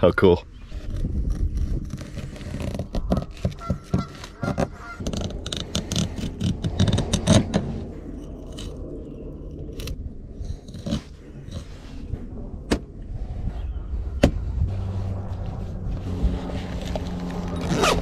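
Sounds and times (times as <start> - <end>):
low steady hum: 0.0 - 18.0
cleaver scraping cutting board: 0.7 - 7.8.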